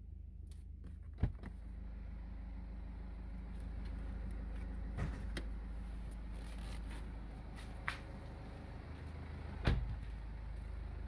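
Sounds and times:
diesel engine idling hum: 0.0 - 11.0.

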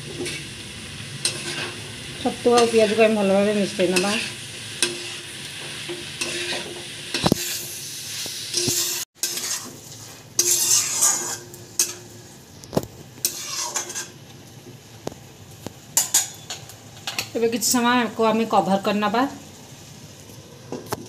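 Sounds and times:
mushrooms sizzling in oil: 0.0 - 21.0
metal spatula scraping pan: 1.2 - 12.1, 13.2 - 14.2.

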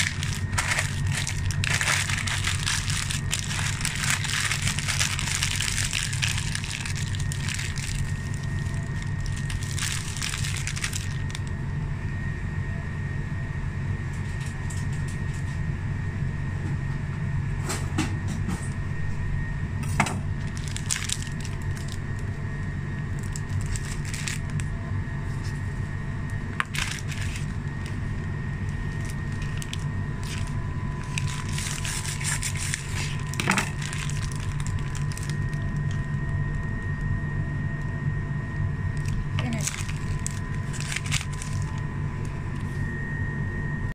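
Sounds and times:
paper wrapper crinkling: 0.0 - 11.6, 20.4 - 22.2, 23.1 - 25.8, 26.5 - 36.8, 38.9 - 41.9
faint high whine: 0.0 - 43.9
low machine hum: 0.0 - 43.9.

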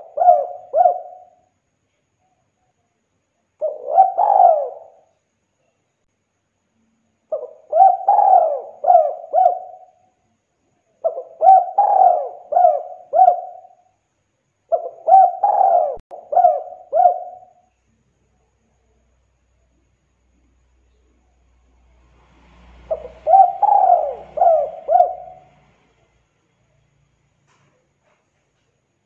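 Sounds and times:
dove cooing: 0.0 - 1.4, 3.6 - 5.1, 7.3 - 10.0, 11.0 - 13.8, 14.7 - 17.6, 22.8 - 25.9.

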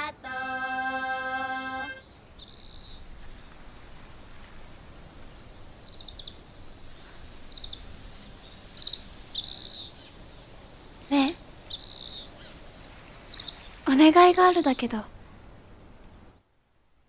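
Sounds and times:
children's song: 0.0 - 2.0
faint outdoor background: 0.0 - 17.0.

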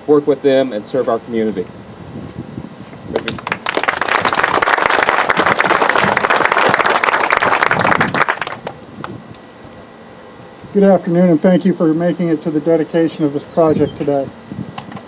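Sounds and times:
crowd applauding: 3.2 - 8.8.

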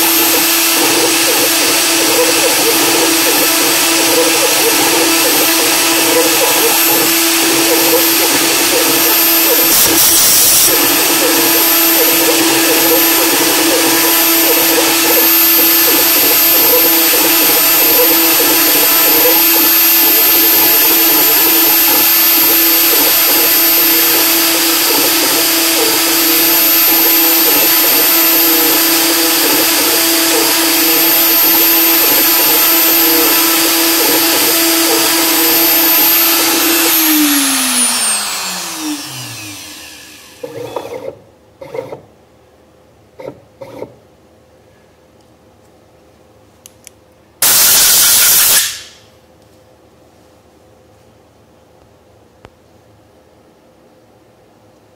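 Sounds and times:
end mill engraving metal: 0.0 - 42.0
milling machine spindle whine: 0.0 - 42.0.

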